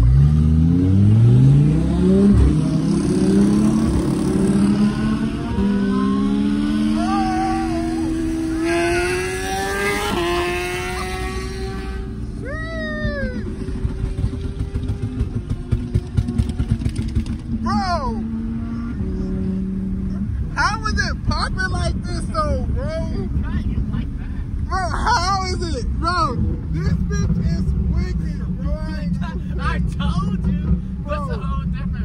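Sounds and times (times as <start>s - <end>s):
car engine accelerating from inside: 0.0s - 15.3s.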